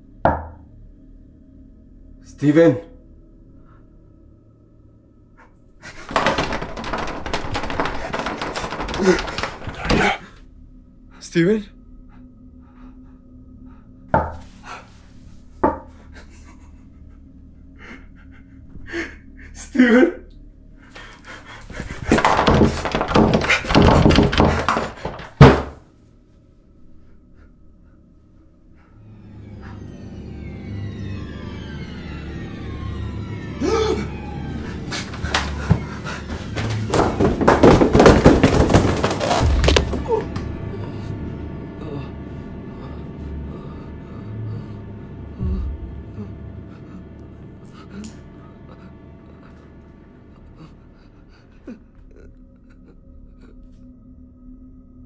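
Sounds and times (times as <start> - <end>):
loud sharp thumps: 37.5 - 51.1
low steady hum: 39.4 - 53.7.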